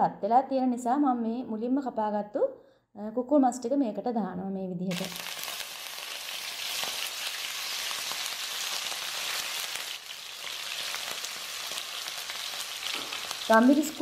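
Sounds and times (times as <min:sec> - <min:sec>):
chicken sizzling in hot oil: 0:04.9 - 0:14.0.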